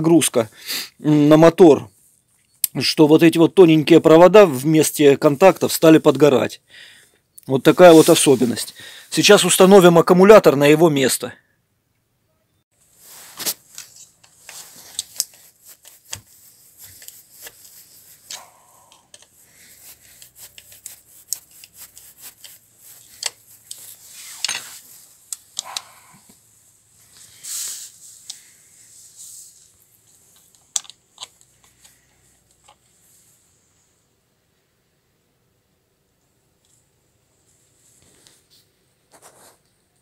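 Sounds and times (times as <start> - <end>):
rubbing and rustling: 7.6 - 9.8, 12.8 - 34.0, 37.4 - 40.0.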